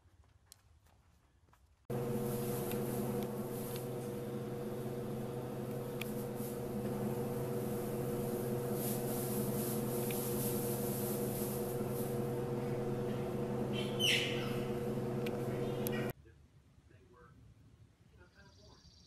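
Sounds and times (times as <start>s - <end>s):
hay rustling: 1.9s - 14.7s
low mechanical hum: 1.9s - 16.1s.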